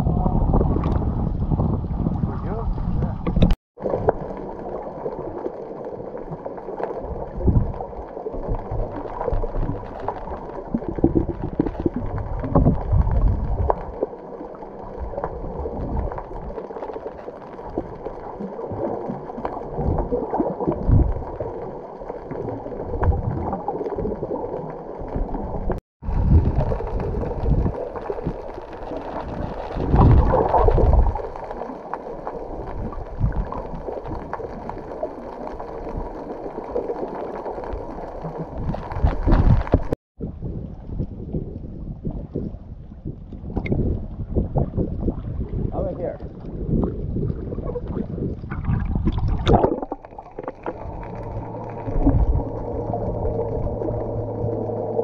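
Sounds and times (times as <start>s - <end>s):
wind buffeting microphone: 0.0s - 3.6s, 26.0s - 28.4s, 38.6s - 49.6s
water splashing: 1.9s - 40.0s, 44.5s - 55.0s
boat engine hum: 50.7s - 55.0s.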